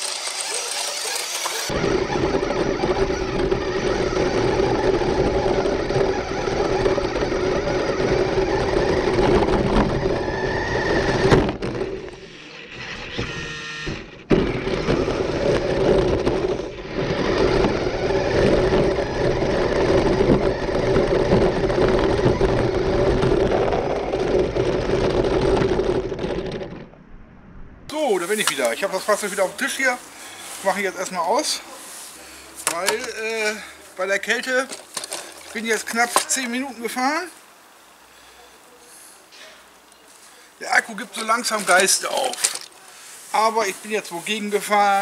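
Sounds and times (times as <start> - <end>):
electric motor and gearbox whining: 0.0 - 27.0, 32.6 - 37.2, 40.7 - 42.8.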